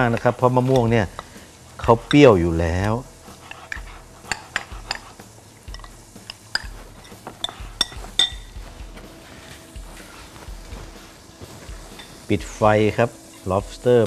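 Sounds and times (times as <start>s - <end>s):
spoon clinking glass bowl: 5.7s - 8.5s.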